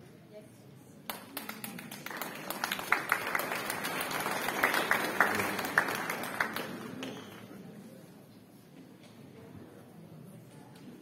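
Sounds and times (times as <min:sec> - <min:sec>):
audience applauding: 0:01.1 - 0:07.5.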